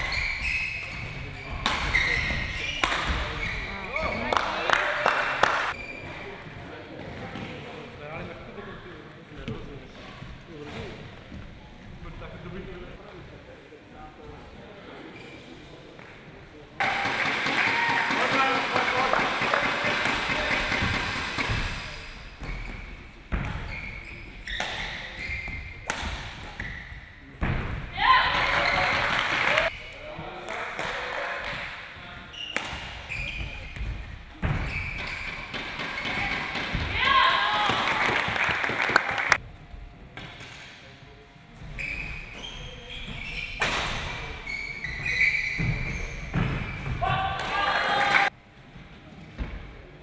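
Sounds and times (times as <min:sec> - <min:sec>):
shoes squeaking on court: 0:00.0 - 0:04.3, 0:20.4 - 0:27.2, 0:32.3 - 0:36.4, 0:41.6 - 0:43.7, 0:44.4 - 0:47.0.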